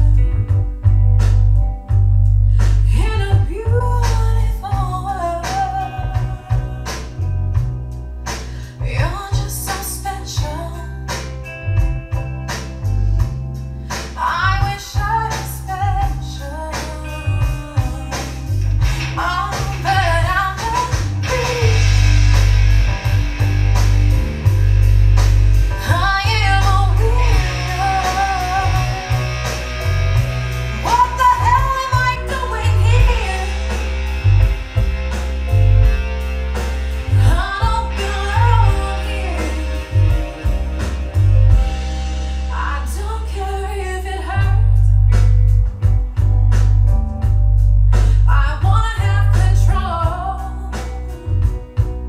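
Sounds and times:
deep subwoofer bass: 0:00.0 - 0:52.0
song over loudspeakers: 0:25.6 - 0:30.0, 0:30.7 - 0:34.4, 0:37.0 - 0:44.7.

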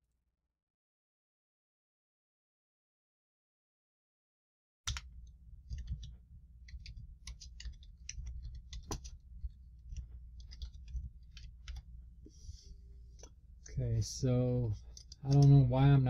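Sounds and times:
computer keyboard typing: 0:04.9 - 0:11.9, 0:14.8 - 0:15.6
steady low hum: 0:04.9 - 0:16.0.

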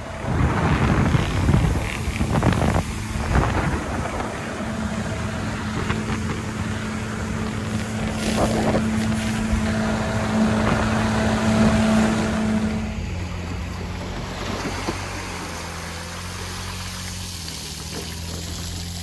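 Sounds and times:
wind buffeting microphone: 0:00.0 - 0:15.9
boat engine drone: 0:00.0 - 0:19.0
water rushing past hull: 0:00.0 - 0:19.0.

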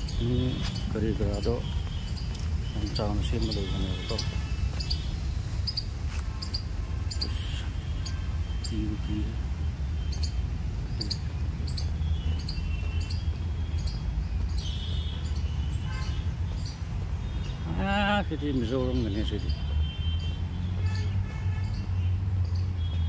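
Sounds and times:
bird trill: 0:00.0 - 0:09.3, 0:10.0 - 0:17.6
bird chirps: 0:00.0 - 0:17.7.

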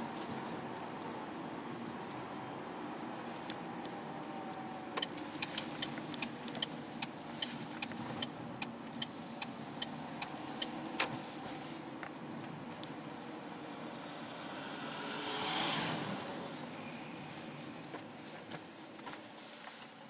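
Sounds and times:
car engine and road hum: 0:00.0 - 0:19.4
turn indicator ticking: 0:05.0 - 0:11.1.

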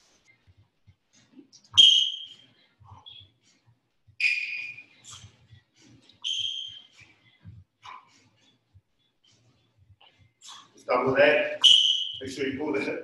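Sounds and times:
sneakers squeaking on hardwood: 0:04.2 - 0:05.3, 0:06.2 - 0:07.1, 0:11.6 - 0:12.2.

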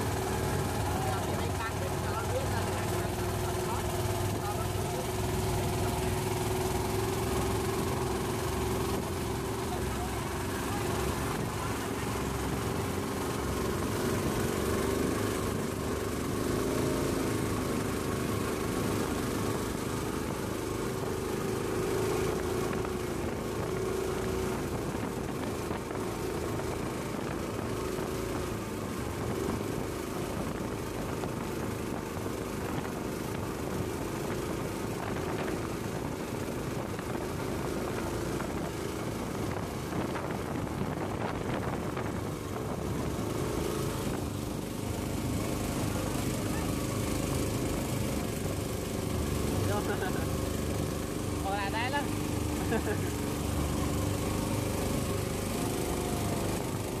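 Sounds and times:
motorboat engine running: 0:00.0 - 0:57.0
water and wind rushing: 0:00.0 - 0:57.0.

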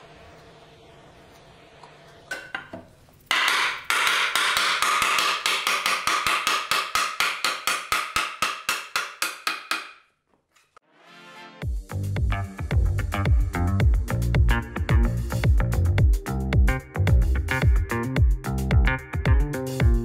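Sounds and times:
hammer tapping wood joint: 0:03.3 - 0:10.1.

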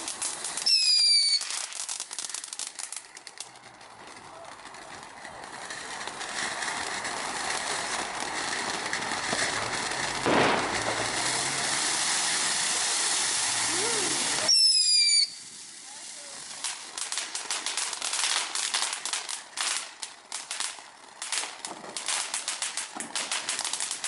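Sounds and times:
firework crackling pops: 0:00.0 - 0:24.0
firework sparks hissing: 0:00.0 - 0:24.0.

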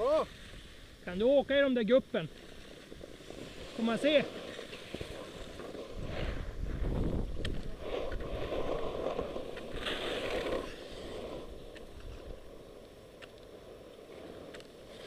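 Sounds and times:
skis scraping over snow: 0:00.0 - 0:15.0
wind rushing on microphone: 0:02.8 - 0:13.0.

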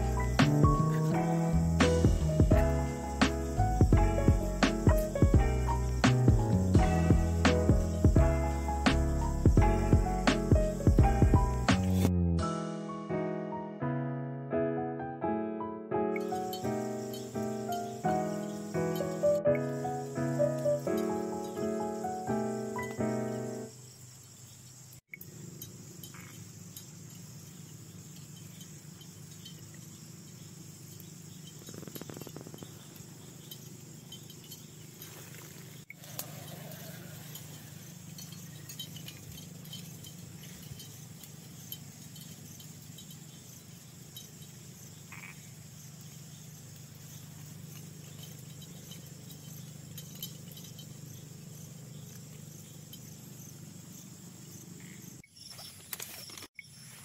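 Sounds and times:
insects chirping: 0:00.0 - 0:13.7, 0:15.6 - 0:57.0
frogs calling: 0:16.2 - 0:57.0.

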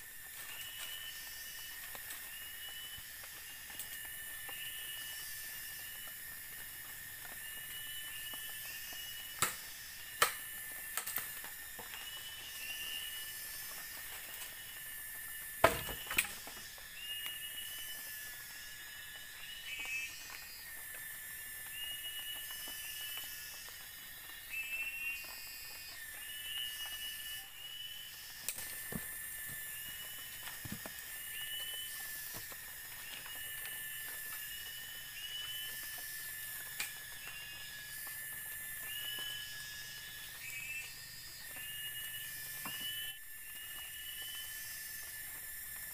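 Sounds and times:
high insect drone: 0:00.0 - 0:45.9
machete chopping wood: 0:15.6 - 0:16.3.

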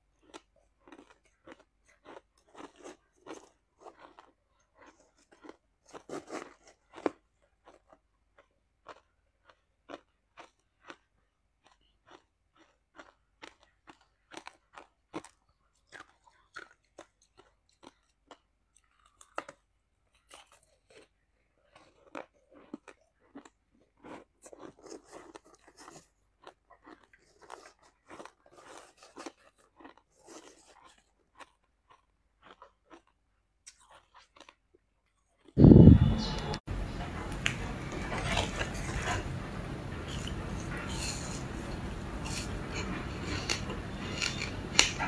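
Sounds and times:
crunching shaved ice: 0:21.7 - 0:33.0, 0:39.9 - 0:45.0.

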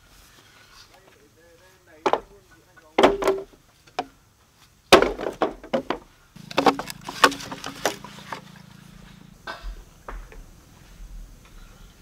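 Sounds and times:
bamboo poles knocking together: 0:01.9 - 0:04.2, 0:04.9 - 0:08.5.

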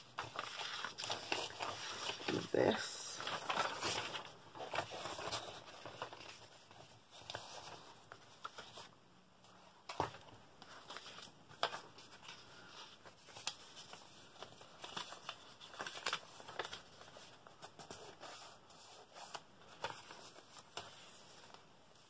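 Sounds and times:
paper rustling and crinkling: 0:00.0 - 0:22.0.

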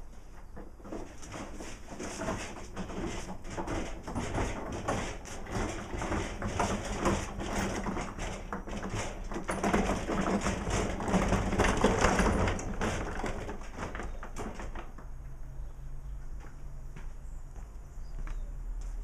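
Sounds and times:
cart casters rumbling on concrete: 0:00.0 - 0:15.3.

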